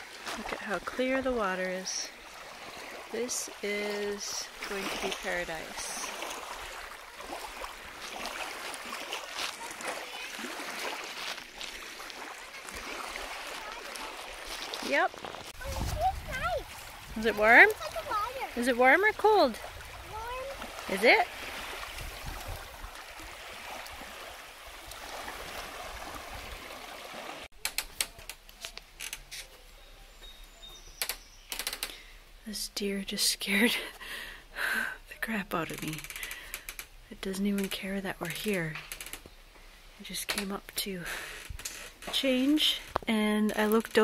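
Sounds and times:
waves lapping on pebbles: 0.0 - 27.5.

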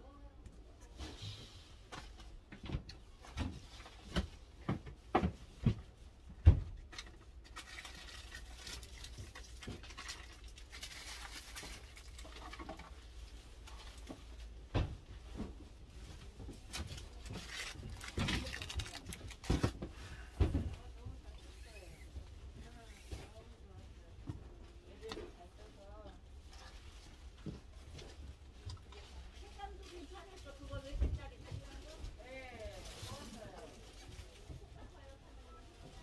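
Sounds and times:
soft rustling: 7.6 - 36.0.

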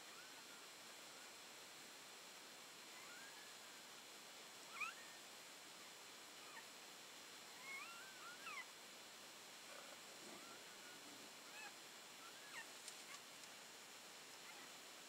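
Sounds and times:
puppies squeaky cries: 4.7 - 5.0, 7.6 - 8.7, 11.5 - 12.7.

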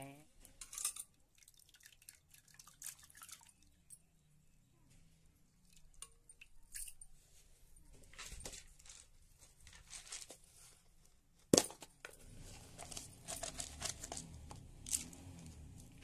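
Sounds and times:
plastic rustling and crinkling: 7.2 - 11.5, 12.2 - 15.2.

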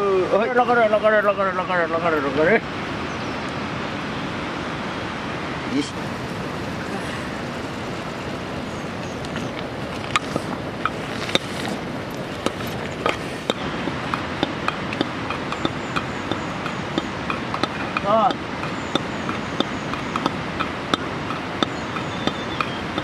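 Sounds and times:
steady rushing noise: 0.0 - 23.0
wood fire crackling: 5.1 - 23.0.

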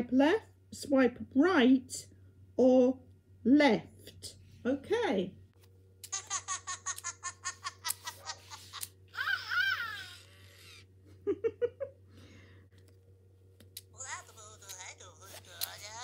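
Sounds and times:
warbling electronic laugh: 6.1 - 12.0.

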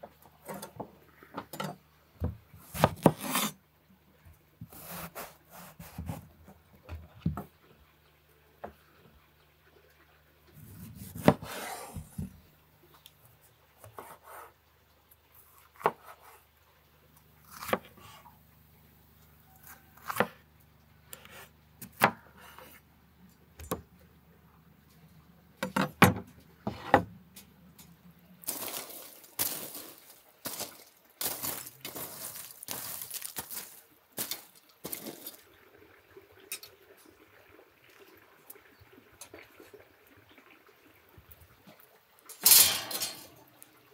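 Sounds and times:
clattering and rustling of food: 0.0 - 3.2, 24.9 - 35.5, 42.2 - 43.6.

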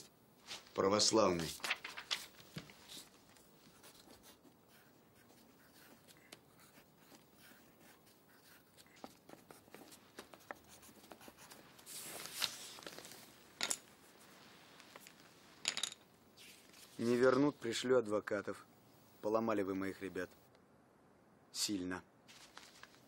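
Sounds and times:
paper rustling: 1.4 - 6.4, 7.0 - 15.3, 22.3 - 23.0
pencil scratching on paper: 2.8 - 12.4.

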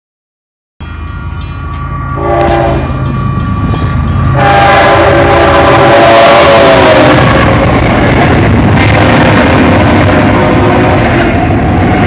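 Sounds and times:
locomotive engine rumble: 0.8 - 12.0
locomotive air horn: 2.1 - 3.1, 4.2 - 7.5, 9.7 - 11.3.

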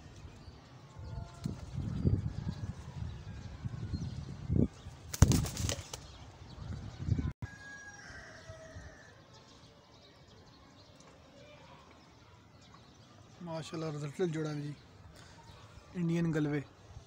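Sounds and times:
pigeon wings flapping: 5.1 - 6.2.

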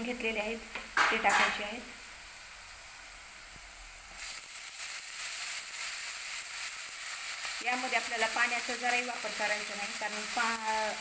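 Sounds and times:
flowers crackling in hot oil: 0.0 - 11.0
oil and spices sizzling in a pan: 0.0 - 11.0.

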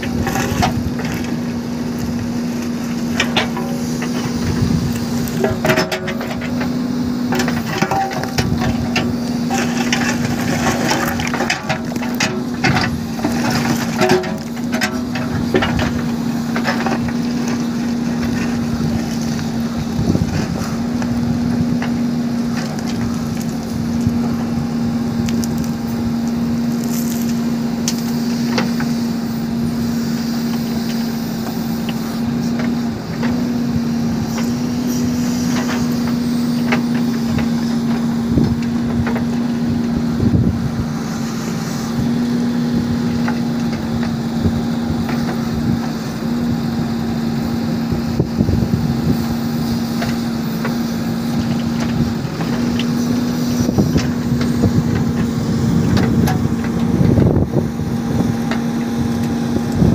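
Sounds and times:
rock and dirt clattering on metal: 0.0 - 24.3
diesel engine droning: 0.0 - 59.9.

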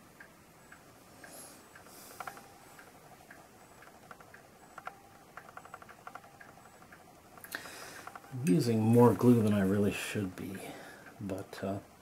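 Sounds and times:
faint clock ticking: 0.0 - 12.0
tweezers clicking on plastic: 3.8 - 8.4.

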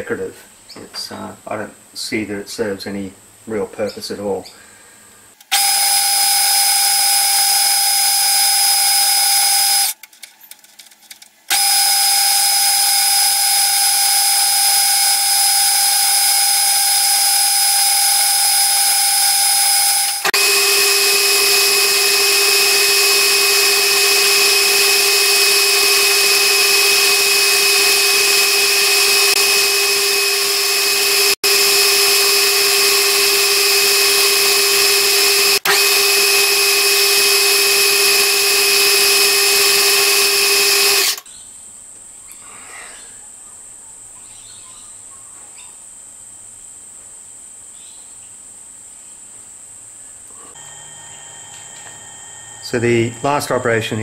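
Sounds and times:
metal lathe whining: 5.5 - 10.0, 11.5 - 41.2, 50.5 - 54.0.

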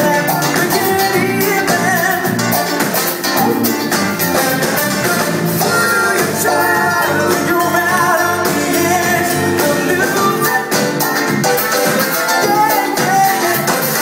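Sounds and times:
person singing: 0.0 - 11.4, 12.2 - 14.0
bass guitar: 0.0 - 14.0
drum kit beat: 0.0 - 14.0
electric guitars: 0.0 - 14.0.

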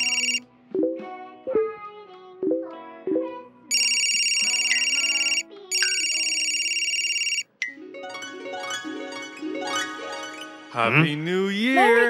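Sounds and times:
electronic phone ringing: 0.0 - 0.4, 3.7 - 7.6
plucked background music: 7.6 - 12.0.

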